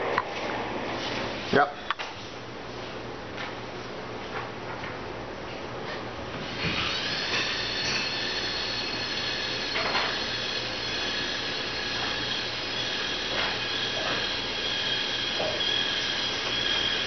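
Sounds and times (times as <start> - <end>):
electric motors whining: 6.5 - 17.0.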